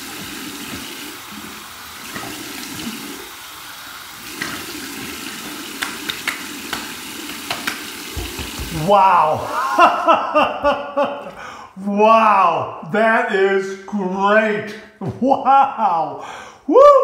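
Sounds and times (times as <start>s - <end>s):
faucet running into sink: 0.0s - 8.9s
water splashing on face: 4.2s - 9.9s.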